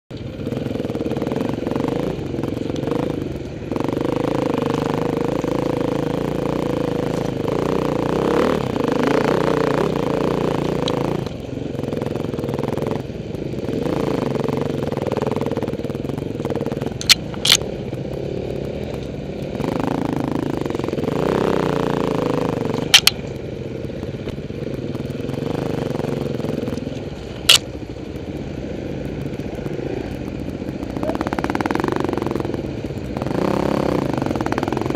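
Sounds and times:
dirt bike engines revving: 0.1s - 34.9s
sharp clacks: 16.4s - 18.0s, 22.7s - 23.5s, 26.2s - 33.2s.

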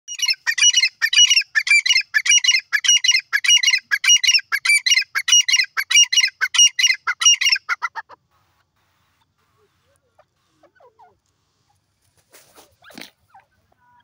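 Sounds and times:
francolin calling shrill phrases: 0.1s - 11.2s.

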